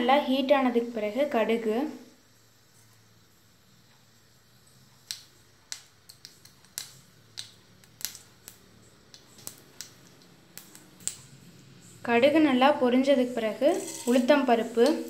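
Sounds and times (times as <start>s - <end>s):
mustard seeds popping in oil: 3.9s - 11.5s, 13.5s - 15.0s.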